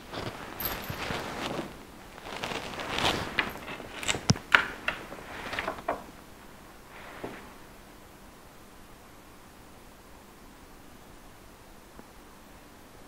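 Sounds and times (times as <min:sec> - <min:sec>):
handling rustling: 0:00.0 - 0:06.3
light clicks and knocks: 0:02.9 - 0:06.1.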